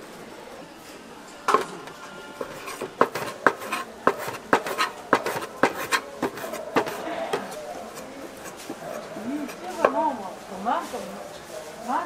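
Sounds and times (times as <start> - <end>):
utensils and dishes clinking: 1.3 - 10.2.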